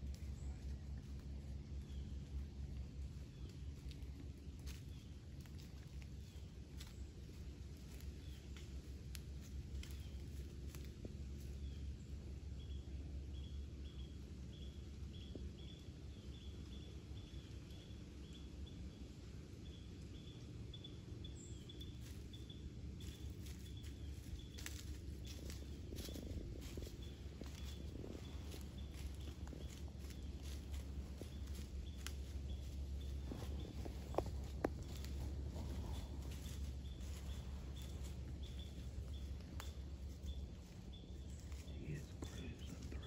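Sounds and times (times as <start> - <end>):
hooves crunching in dry leaves: 0.0 - 12.0, 21.6 - 43.0
low rumble: 0.0 - 43.0.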